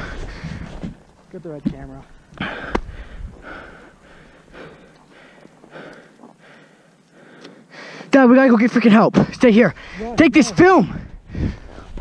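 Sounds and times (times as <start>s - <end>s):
person breathing hard: 0.0s - 0.8s, 2.4s - 8.1s, 10.9s - 12.0s.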